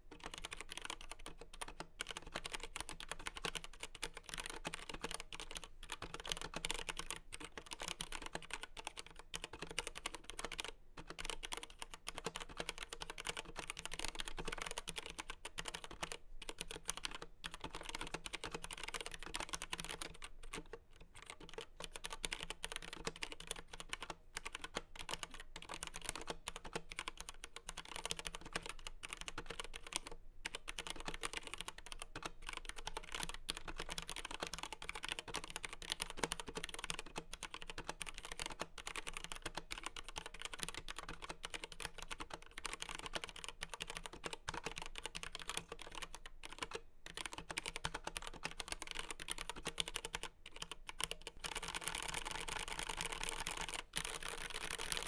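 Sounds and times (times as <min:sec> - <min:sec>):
mechanical keyboard typing: 0:00.0 - 0:55.0.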